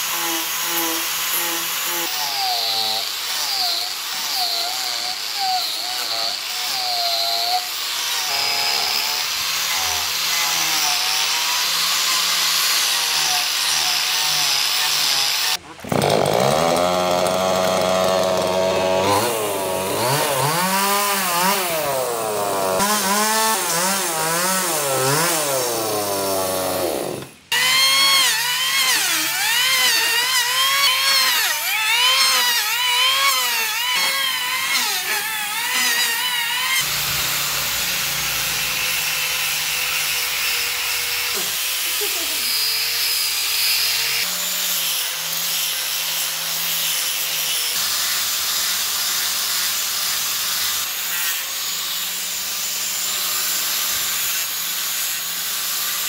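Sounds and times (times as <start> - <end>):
angle grinder sanding wood: 0.0 - 56.0
electric planer shaving wood: 0.0 - 56.0
chainsaw revving and cutting: 13.1 - 44.6.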